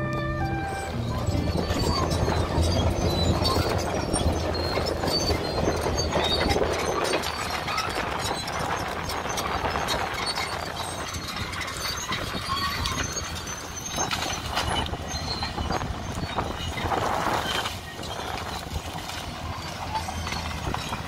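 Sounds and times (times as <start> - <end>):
bulldozer engine rumbling: 0.0 - 21.0
heavy chain clanking: 0.7 - 9.2.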